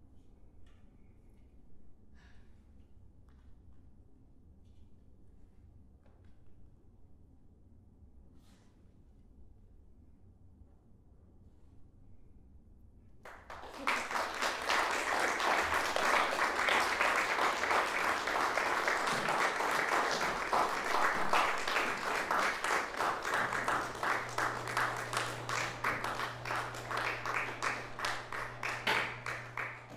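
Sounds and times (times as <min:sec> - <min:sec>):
audience applause: 0:13.3 - 0:29.9
low steady hum: 0:13.5 - 0:29.9.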